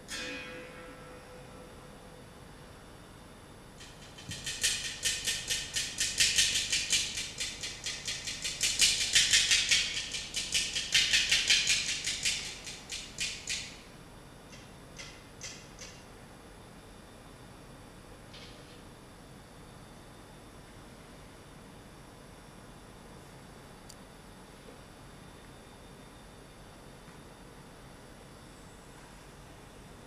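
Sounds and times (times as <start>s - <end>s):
rattle shaken rhythmically: 3.8s - 13.7s.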